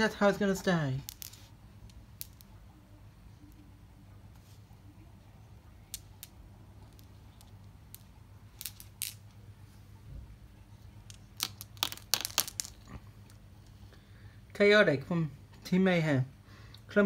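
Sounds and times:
faint low hum: 0:00.0 - 0:17.0
glass marbles clicking: 0:01.0 - 0:02.5, 0:05.9 - 0:09.3, 0:11.0 - 0:13.4.

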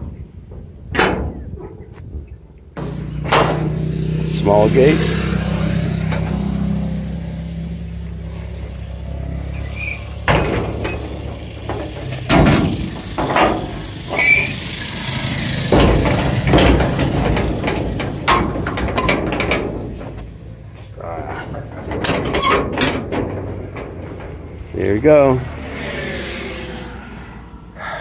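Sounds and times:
metal latch knocks and scrapes: 0:00.5 - 0:02.2, 0:02.8 - 0:25.2
metal squeak: 0:08.2 - 0:24.8.

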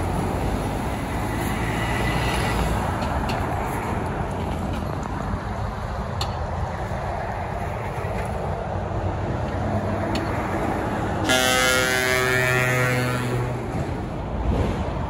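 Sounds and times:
lorry engines and traffic: 0:00.0 - 0:15.0
truck air horn: 0:11.2 - 0:13.7.

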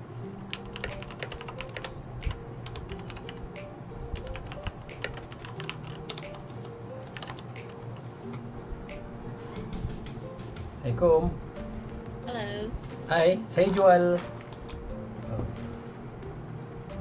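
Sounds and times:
background music: 0:00.0 - 0:17.0
keyboard typing: 0:00.4 - 0:08.4.

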